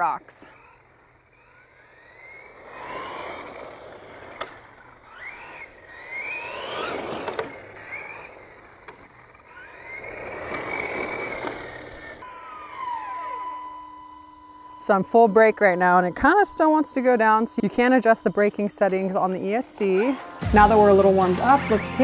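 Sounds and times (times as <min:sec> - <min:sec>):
tyres rushing on concrete: 0:00.0 - 0:12.3
electric motor whining: 0:00.0 - 0:22.0.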